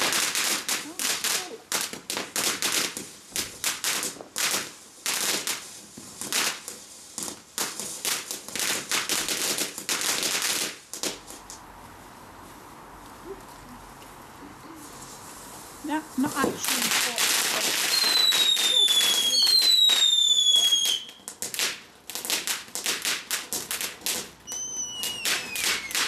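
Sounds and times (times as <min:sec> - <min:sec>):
firework crackling and popping: 0:00.0 - 0:26.0.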